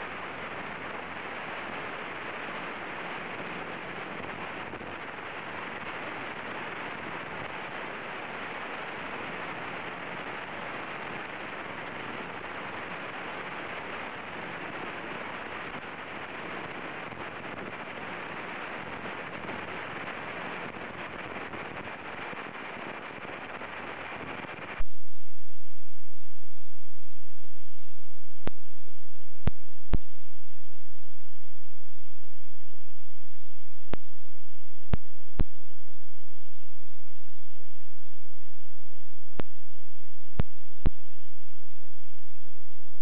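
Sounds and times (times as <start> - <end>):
plane engine and propeller drone: 0.0 - 43.0.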